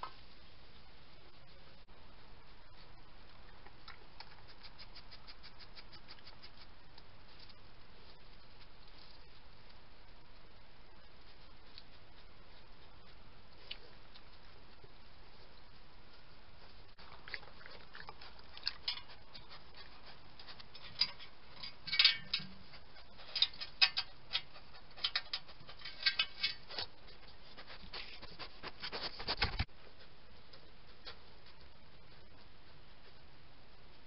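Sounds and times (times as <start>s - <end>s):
animal scratching and rustling: 2.6s - 9.8s, 11.0s - 34.0s.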